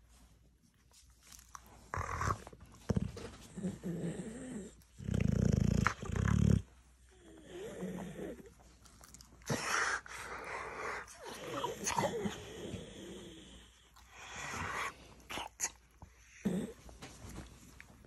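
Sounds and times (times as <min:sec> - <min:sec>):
dog grumbling and growling: 0:01.9 - 0:08.6, 0:09.4 - 0:17.0
dog low rumbles: 0:01.9 - 0:13.7.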